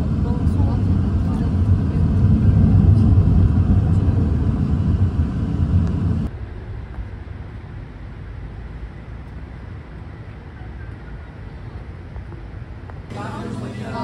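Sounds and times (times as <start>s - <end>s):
car road noise rumble: 0.0s - 13.2s.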